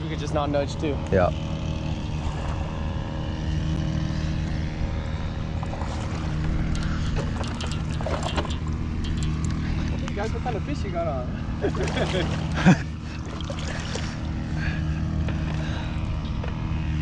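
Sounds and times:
low mechanical engine drone: 0:00.0 - 0:17.0
light clicks and rustles: 0:05.8 - 0:10.5.

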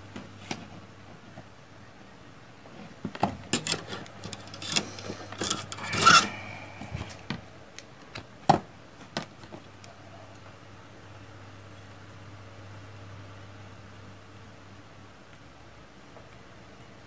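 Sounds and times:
plastic breadboard scraping: 0:03.5 - 0:06.4.

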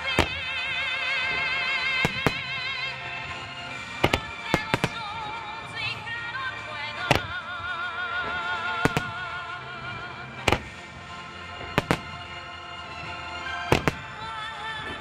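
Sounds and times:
firework shells bursting: 0:00.0 - 0:05.4, 0:07.0 - 0:07.7, 0:08.3 - 0:09.4, 0:10.4 - 0:12.6, 0:13.7 - 0:14.3
music with vibrato melody: 0:00.0 - 0:15.0.

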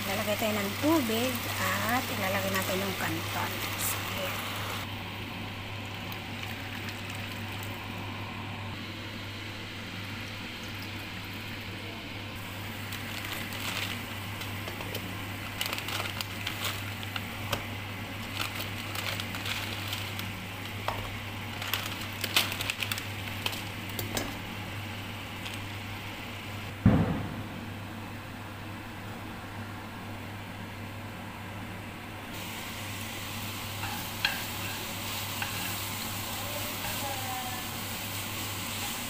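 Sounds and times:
water pouring into a pan: 0:05.9 - 0:07.8
steady low hum: 0:23.0 - 0:36.6.

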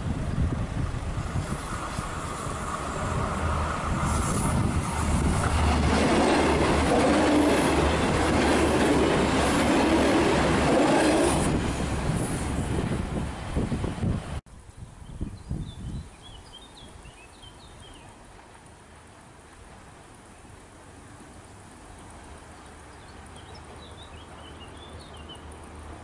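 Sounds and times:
diesel railcar engine running: 0:00.0 - 0:14.4
train wheels rumbling on rails: 0:00.0 - 0:14.4.

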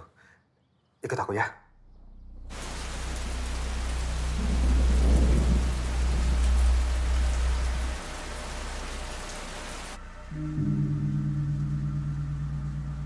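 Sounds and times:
thunder rolling: 0:02.5 - 0:08.8
rain falling: 0:02.5 - 0:13.0.

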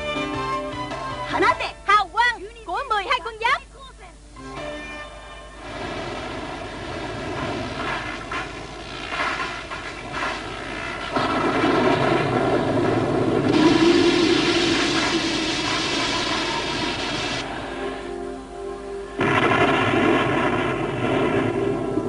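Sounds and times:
cartoon storm wind rush: 0:05.6 - 0:17.9.

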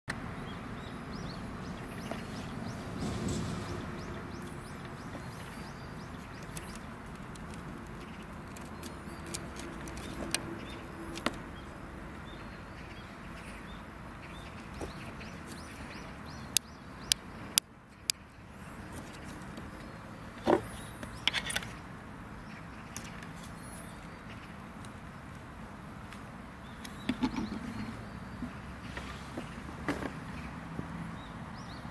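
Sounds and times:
birds chirping: 0:00.1 - 0:31.9
steady outdoor hiss: 0:00.1 - 0:31.9.

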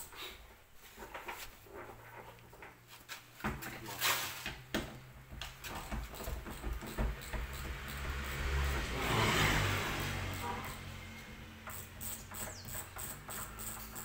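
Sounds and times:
engine humming: 0:06.6 - 0:14.0.

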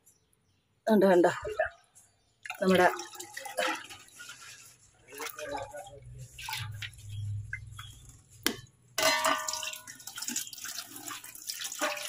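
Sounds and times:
water running: 0:02.4 - 0:12.0.

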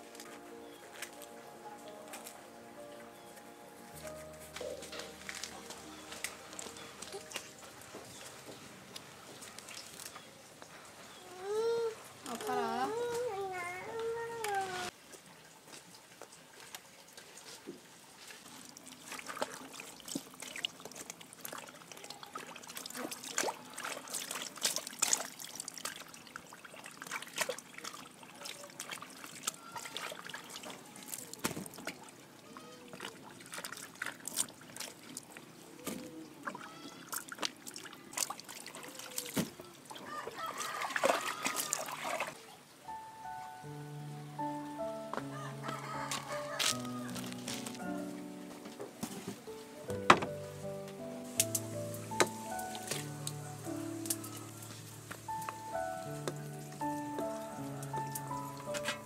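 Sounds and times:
leaves rustling: 0:00.0 - 0:16.0, 0:28.6 - 0:59.0
water splashing in a basin: 0:04.6 - 0:10.3, 0:14.9 - 0:42.6.

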